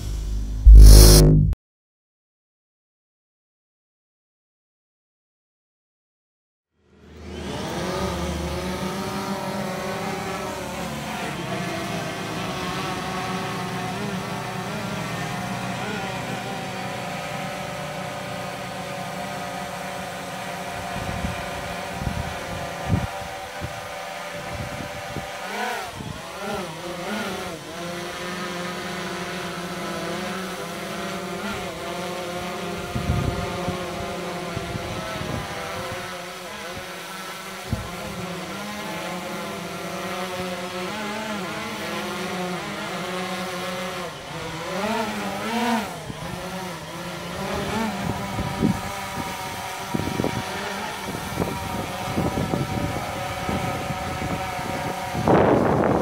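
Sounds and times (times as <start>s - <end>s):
drone propellers buzzing: 0.0s - 1.6s, 6.8s - 56.0s
wind buffeting microphone: 20.7s - 26.3s, 32.8s - 36.1s, 47.3s - 56.0s.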